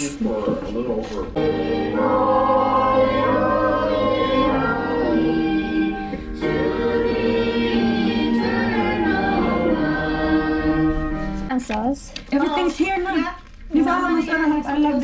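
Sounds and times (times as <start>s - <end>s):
group singing a worship song: 1.2s - 11.4s.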